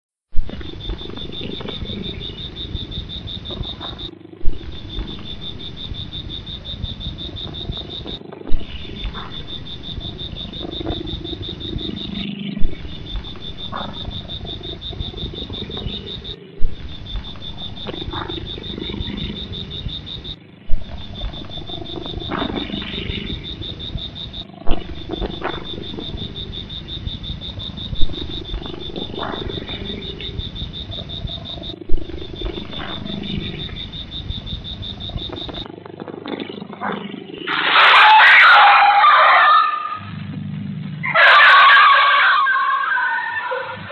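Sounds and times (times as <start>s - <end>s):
big cat growl: 0.5s - 2.6s, 28.0s - 34.0s.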